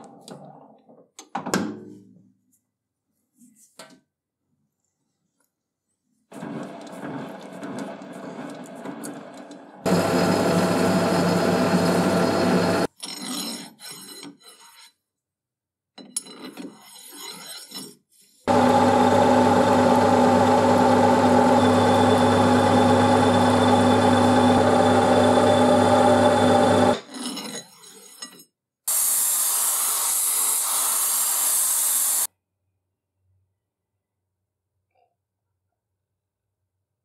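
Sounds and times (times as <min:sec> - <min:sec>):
metal lathe drone: 0:09.9 - 0:12.9, 0:18.5 - 0:27.0
cutting tool turning steel rod: 0:16.6 - 0:28.3.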